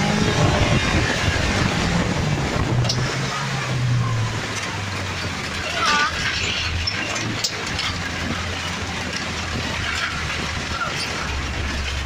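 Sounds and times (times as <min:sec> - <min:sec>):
car engine running: 0:00.0 - 0:12.0
rattling road noise: 0:00.0 - 0:12.0.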